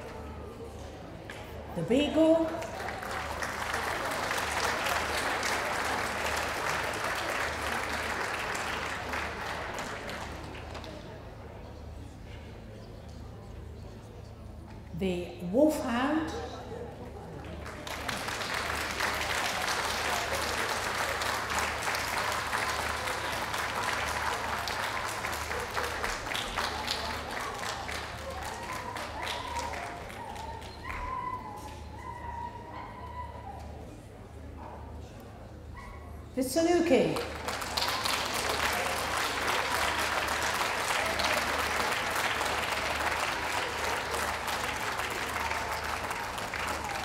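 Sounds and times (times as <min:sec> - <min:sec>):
audience applauding: 0:00.0 - 0:00.3, 0:02.4 - 0:11.6, 0:17.0 - 0:33.0, 0:37.0 - 0:47.0.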